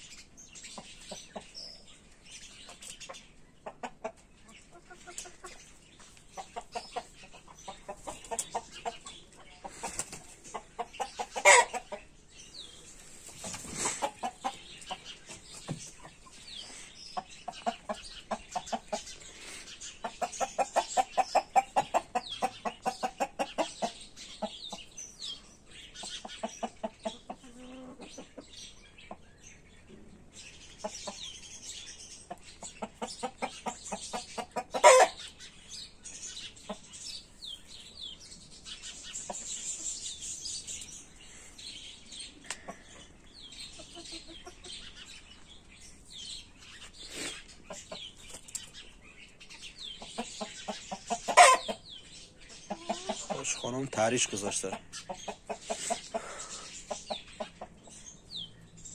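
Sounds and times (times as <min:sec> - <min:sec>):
chickens clucking: 0:00.0 - 0:58.9
high chirping calls: 0:04.4 - 0:58.9.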